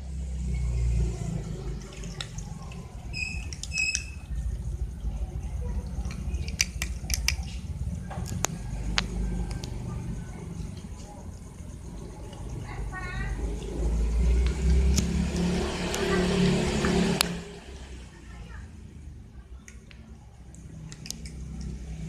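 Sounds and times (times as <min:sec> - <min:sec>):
high chirps: 0:02.4 - 0:04.8.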